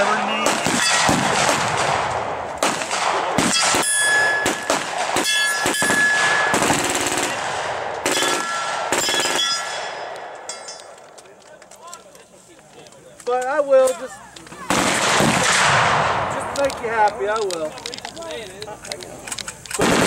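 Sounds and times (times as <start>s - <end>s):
rapid gunfire: 0.0s - 9.7s, 14.7s - 16.3s, 19.8s - 20.0s
ringing clang of shot targets: 0.7s - 1.4s, 3.4s - 6.8s, 8.1s - 11.0s.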